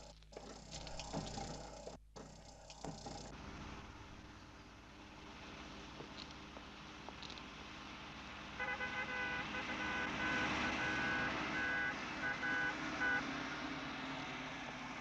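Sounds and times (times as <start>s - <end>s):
car engine running: 0.0s - 13.2s
car horn honking: 8.6s - 13.3s.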